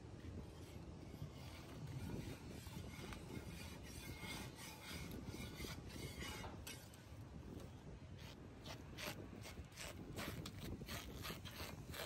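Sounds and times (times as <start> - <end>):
batter scraping on griddle: 0.6 - 7.0.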